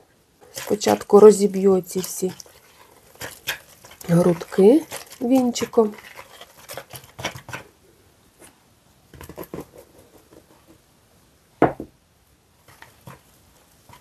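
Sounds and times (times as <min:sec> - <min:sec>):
whisk scraping in plastic bowl: 0:00.4 - 0:07.7, 0:09.2 - 0:10.7, 0:12.7 - 0:14.0.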